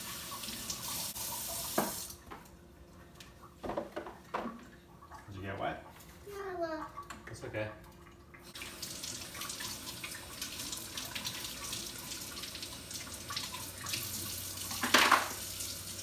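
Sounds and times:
tap running into metal sink: 1.7 - 2.0, 14.7 - 15.4
small splashes and knocks: 3.6 - 6.2.

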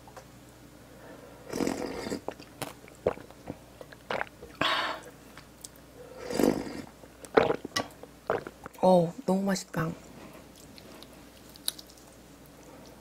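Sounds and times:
person chewing and biting food: 10.5 - 13.0.

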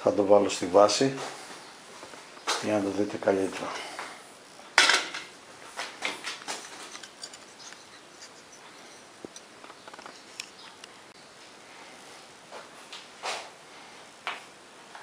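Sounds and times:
scrapes: 5.7 - 10.6.

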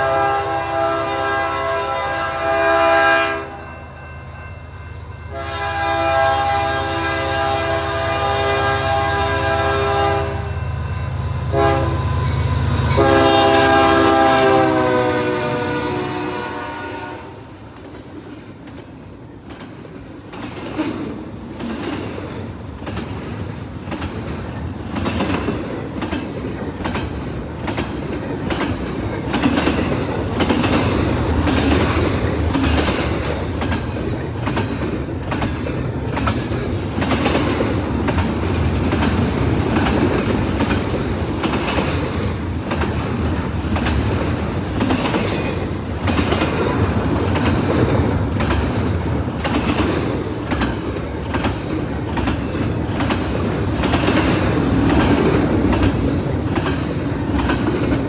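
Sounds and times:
train rumble: 5.3 - 58.0
train wheels clacking on rail joints: 17.7 - 58.0.

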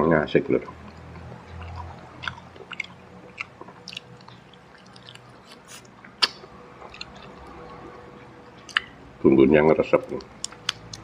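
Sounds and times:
chewing crispy fried chicken: 0.7 - 9.0, 9.8 - 11.0
small crackles and clicks: 10.0 - 11.0.

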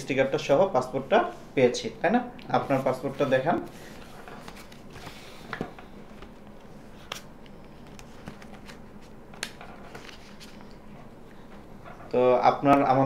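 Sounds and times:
faint room hum: 0.0 - 13.0
paper rustling: 2.7 - 6.3, 6.9 - 10.8.

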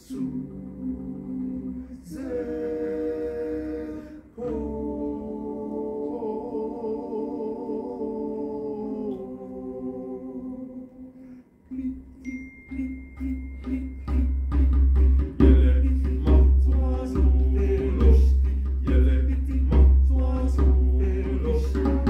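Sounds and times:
choir singing a cappella: 0.0 - 22.0
soft rhythmic beats: 12.0 - 22.0.

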